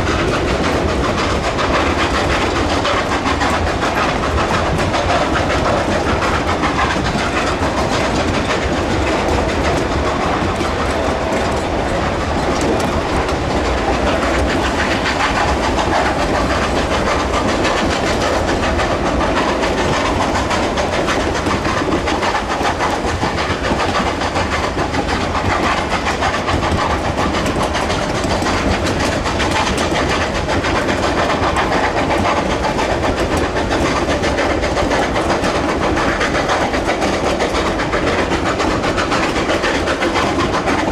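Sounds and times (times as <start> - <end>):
steel wheels clattering over joints: 0.0 - 40.9
train cars rattling: 0.0 - 40.9
train rumble: 0.0 - 40.9.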